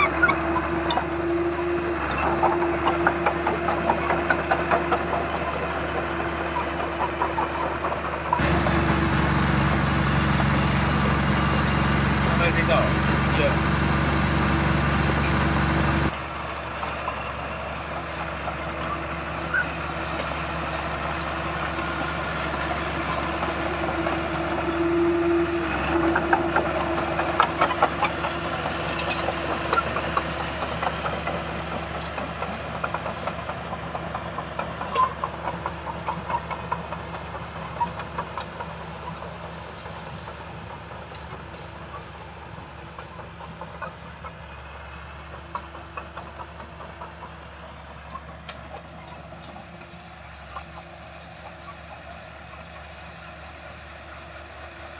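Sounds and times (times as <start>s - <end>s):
bulldozer diesel engine running: 0.0s - 54.9s
close engine running: 0.0s - 54.9s
clanking tracks and blade: 24.8s - 31.4s.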